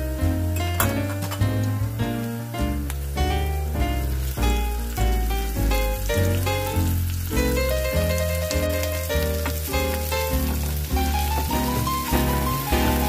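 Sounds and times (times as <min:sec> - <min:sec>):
oil sizzling in frying pan: 0:00.0 - 0:13.0
background music with beat: 0:07.3 - 0:13.0.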